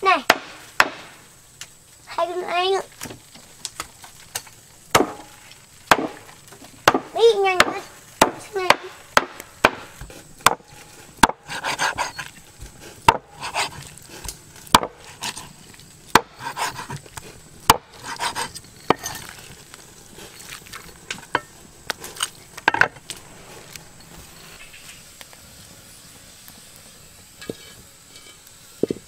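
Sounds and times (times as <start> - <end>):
blade chopping wood: 0.2 - 1.2, 4.9 - 10.6, 11.2 - 15.4, 16.1 - 17.0
scraping and rustling: 9.9 - 25.6.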